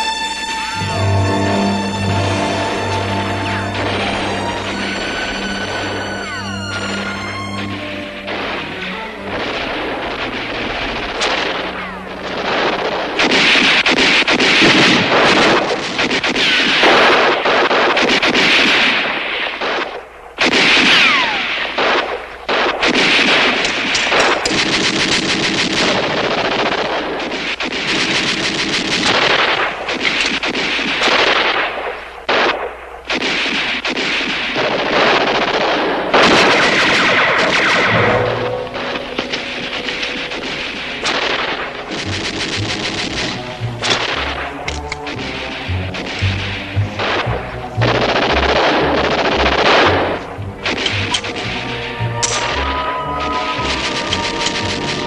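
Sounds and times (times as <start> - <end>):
rifle and pistol shots: 3.2 - 52.6
automatic gunfire bursts: 9.3 - 51.5.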